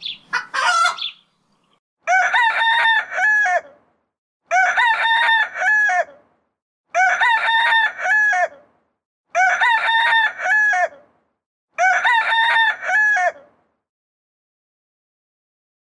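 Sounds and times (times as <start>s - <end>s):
rooster crowing: 0.4s - 1.1s, 2.0s - 3.8s, 4.5s - 6.2s, 6.9s - 8.6s, 9.3s - 11.0s, 11.8s - 13.5s.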